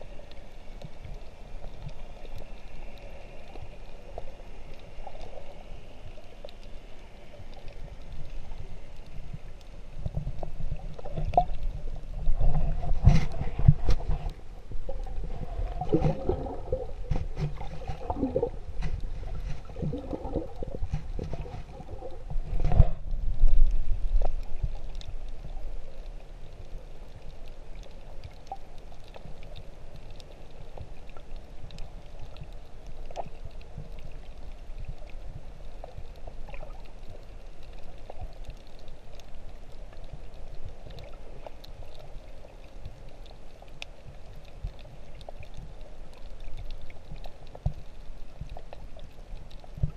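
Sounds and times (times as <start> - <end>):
underwater bubbling and gurgling: 0.0 - 49.9
water wash with faint crackles: 0.0 - 49.9
water surge: 12.3 - 23.0.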